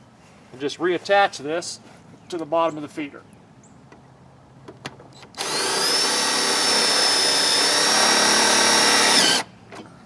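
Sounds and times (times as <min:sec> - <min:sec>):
cordless drill whining: 0:05.3 - 0:09.5.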